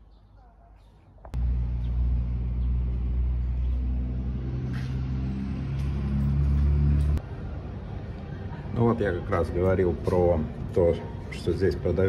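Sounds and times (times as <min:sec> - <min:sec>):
vehicle engine running: 0:01.4 - 0:07.2.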